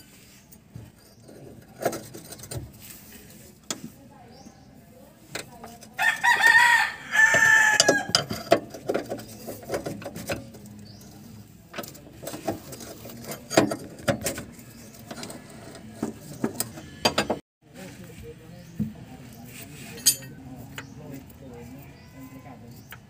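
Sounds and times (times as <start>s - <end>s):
rooster crowing: 6.0s - 8.2s.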